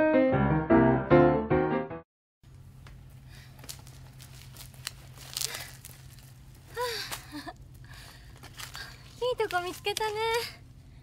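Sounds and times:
steady low hum: 0:02.5 - 0:11.0.

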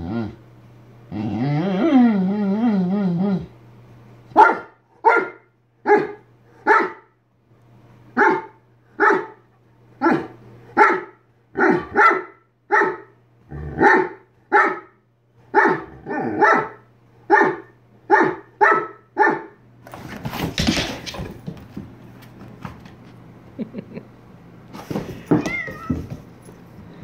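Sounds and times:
dog barking short woofs: 0:04.4 - 0:07.0.

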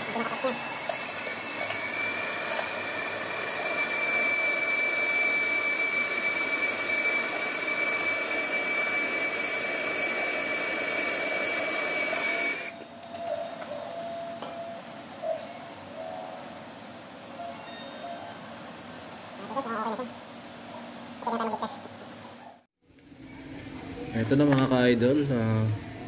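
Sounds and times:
gas torch flame hissing: 0:01.2 - 0:12.7.

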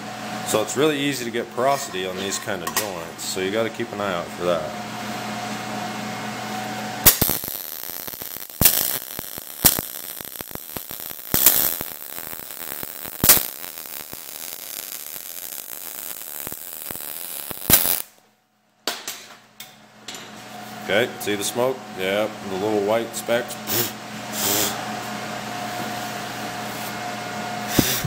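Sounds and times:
steady hum: 0:00.0 - 0:18.2, 0:19.8 - 0:28.0
welding arc crackling and popping: 0:07.0 - 0:18.2, 0:27.7 - 0:28.0.

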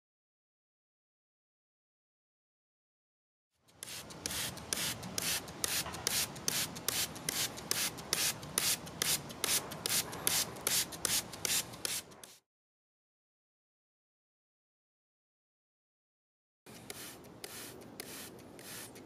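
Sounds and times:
spray bottle hissing: 0:03.7 - 0:12.4, 0:16.7 - 0:19.0.

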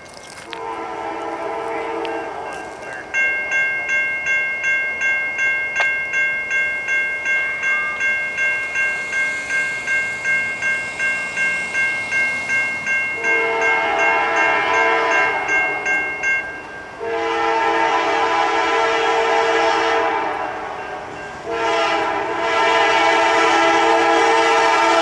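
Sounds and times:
locomotive air horn: 0:00.5 - 0:03.1, 0:12.0 - 0:16.0, 0:17.0 - 0:25.0
crossing bell ringing: 0:00.6 - 0:25.0.

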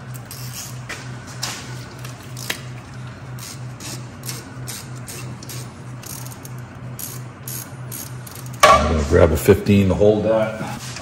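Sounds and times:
steady low hum: 0:00.0 - 0:11.0
hand ratchet clicking: 0:03.4 - 0:08.6.

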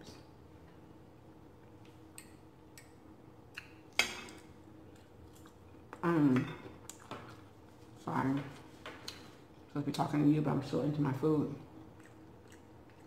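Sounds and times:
person chewing: 0:01.6 - 0:06.0, 0:06.7 - 0:07.5, 0:11.9 - 0:13.0.

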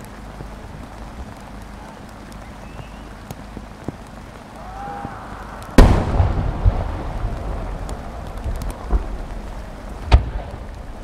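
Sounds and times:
rolling rumble of echoes: 0:00.0 - 0:11.0
firework shell boom: 0:05.8 - 0:06.9.

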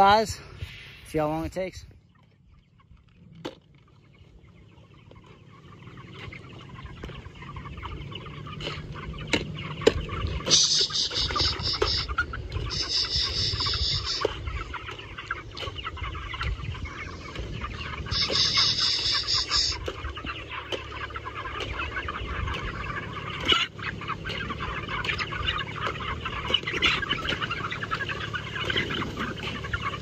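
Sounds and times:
chickens clucking and cheeping: 0:00.0 - 0:30.0
low rumble: 0:04.0 - 0:20.2.

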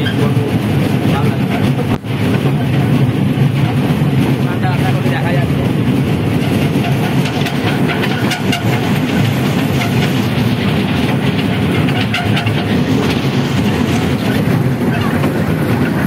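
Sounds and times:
toy train carriages rumbling: 0:06.2 - 0:16.0
wheel clicks on rails: 0:06.3 - 0:16.0.

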